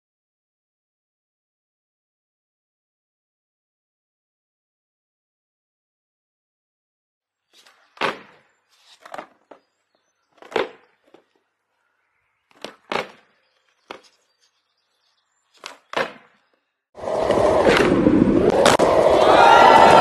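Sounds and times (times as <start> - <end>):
skateboard wooden clacks: 7.6 - 11.4, 12.5 - 14.5, 15.5 - 16.6
loud noisy din: 17.0 - 20.0.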